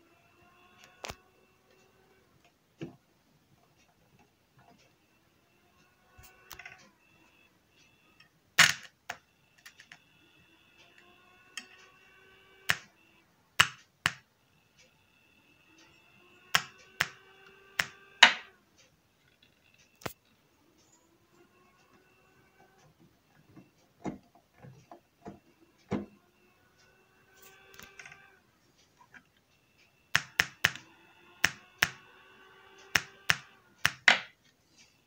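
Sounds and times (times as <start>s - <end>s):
faint power supply whine: 0.0s - 35.0s
sharp electrical clicks and snaps: 0.8s - 1.2s, 12.7s - 12.9s, 16.5s - 20.4s, 29.0s - 34.9s.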